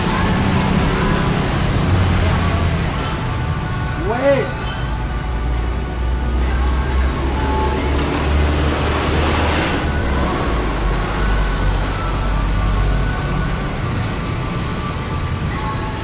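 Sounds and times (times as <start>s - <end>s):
traffic engines rumbling: 0.0s - 16.0s
car passing close: 5.6s - 16.0s.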